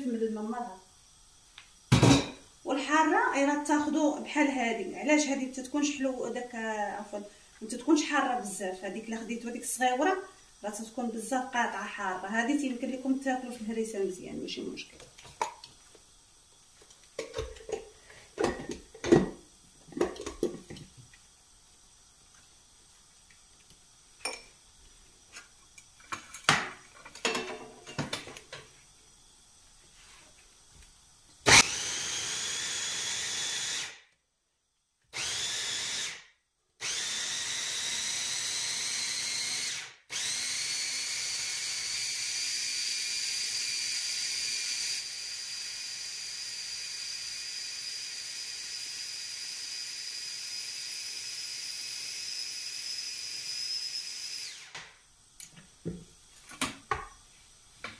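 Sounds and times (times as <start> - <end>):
mini chopper motor whining: 31.5 - 34.0, 36.8 - 54.8.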